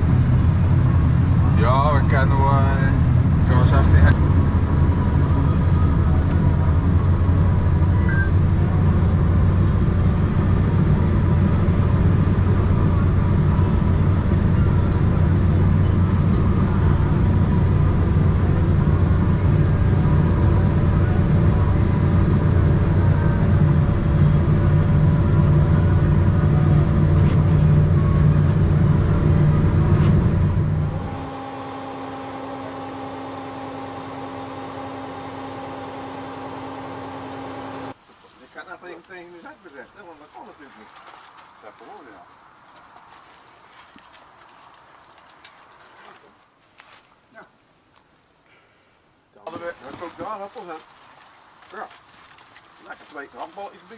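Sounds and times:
combine harvester drone: 0.0s - 38.0s
quieter hum with higher tones: 0.0s - 38.0s.

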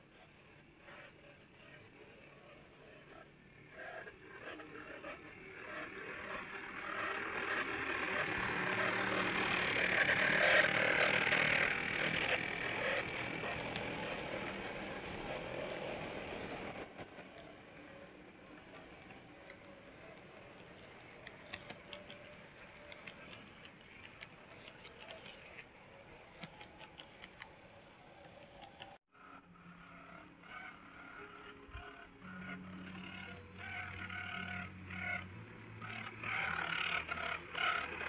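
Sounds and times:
model train motor whirring: 3.0s - 28.9s.

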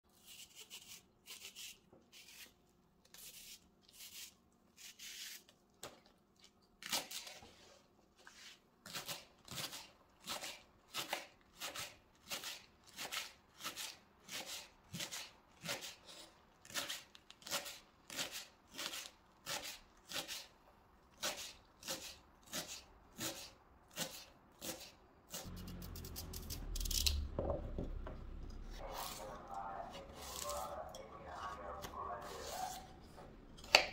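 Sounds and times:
knife chopping on wooden board: 33.6s - 33.9s.

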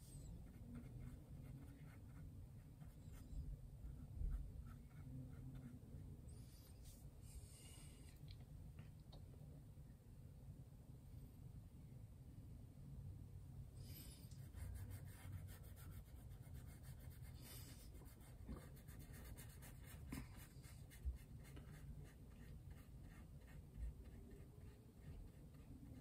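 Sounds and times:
paintbrush stroking canvas: 0.0s - 7.4s, 14.0s - 26.0s.

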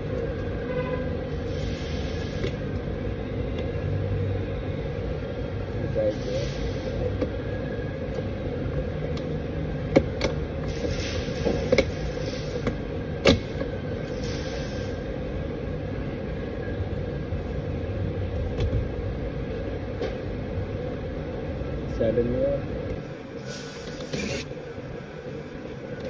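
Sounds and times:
steady shop hum: 0.0s - 26.0s.

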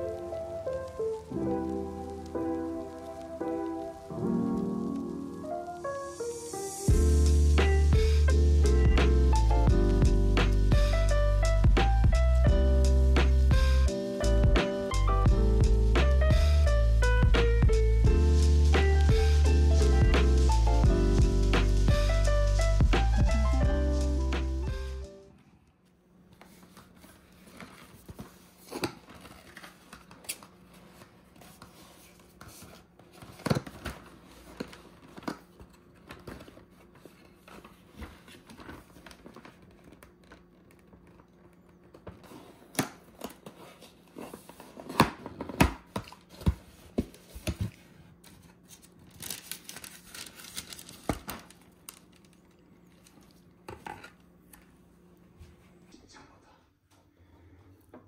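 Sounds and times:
cardboard boxes crinkling and rustling: 26.6s - 52.3s.

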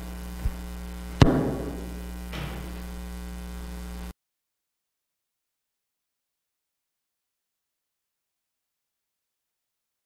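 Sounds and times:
electrical mains hum: 0.0s - 4.2s
sharp ringing knock: 1.2s - 2.7s.

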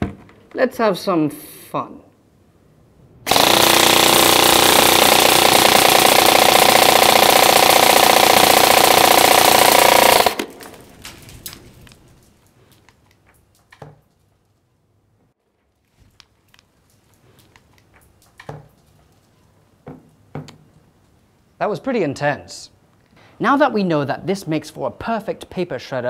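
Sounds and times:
airsoft gun firing full auto: 3.3s - 11.0s.

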